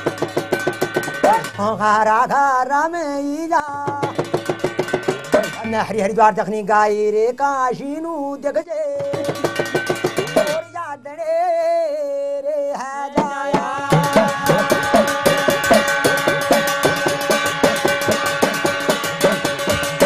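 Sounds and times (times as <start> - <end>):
hourglass drum strokes: 0.0 - 1.6, 4.0 - 5.7, 13.2 - 20.0
ringing metallic tones: 0.0 - 2.2, 4.0 - 6.3, 9.0 - 11.0, 13.8 - 20.0.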